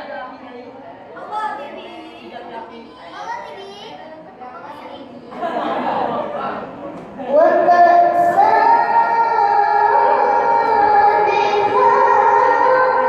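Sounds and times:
girl reciting melodically: 0:07.2 - 0:13.0.

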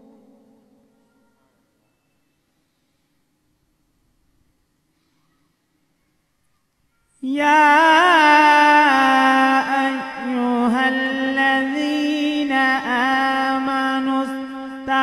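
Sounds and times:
man reciting melodically: 0:07.2 - 0:15.0.

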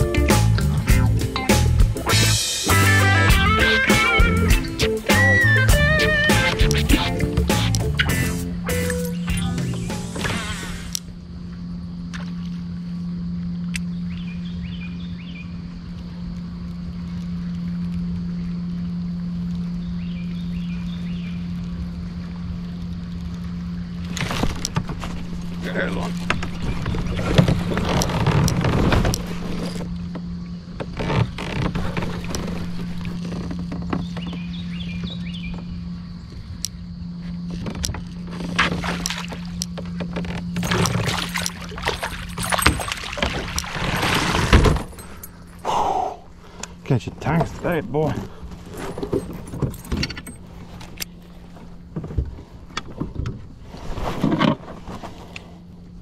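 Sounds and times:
steady low hum: 0:00.0 - 0:56.0
handling knocks and rattles: 0:37.4 - 0:45.6, 0:47.1 - 0:55.0.

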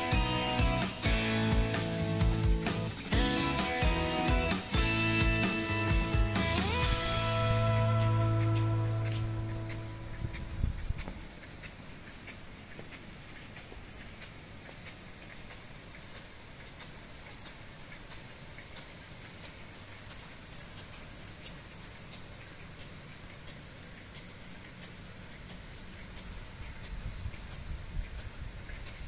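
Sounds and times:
sprinkler arm ticking: 0:00.0 - 0:29.0
water spray hissing: 0:00.0 - 0:29.0
low rumble: 0:00.2 - 0:11.3.

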